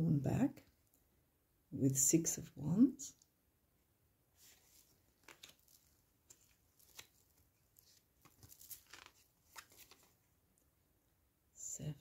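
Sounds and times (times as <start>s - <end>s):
cards ticking and rustling: 4.7s - 10.2s.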